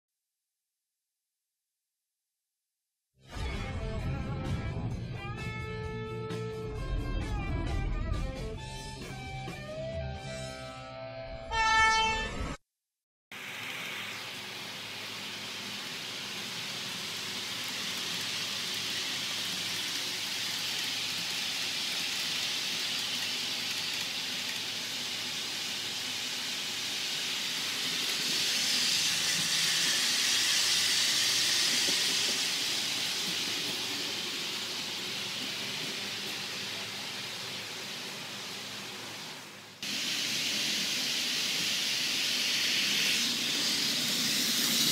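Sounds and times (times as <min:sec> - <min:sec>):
model trains rushing hiss: 0:13.4 - 0:44.9.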